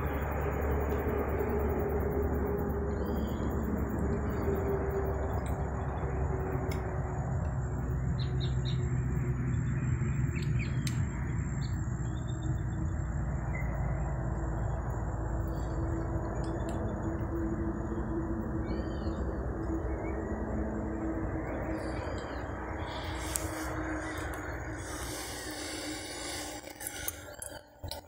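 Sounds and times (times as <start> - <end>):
birds chirping: 7.6 - 14.0, 17.8 - 27.8.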